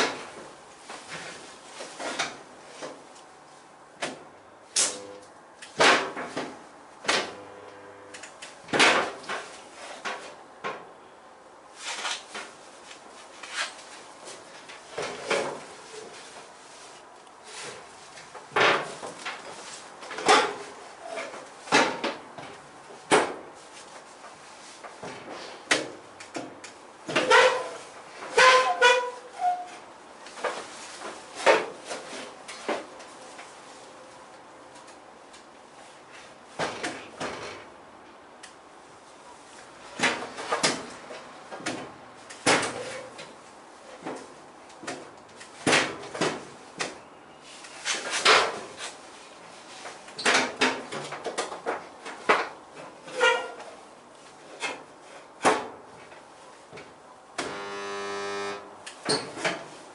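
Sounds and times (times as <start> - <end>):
short low buzz: 7.4 - 8.2, 57.4 - 58.7.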